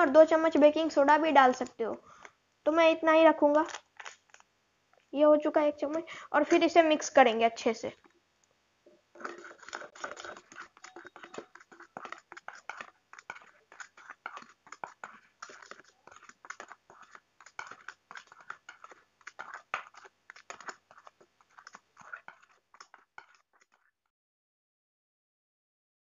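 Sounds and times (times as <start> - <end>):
spoon scraping metal bowl: 8.9 - 24.0.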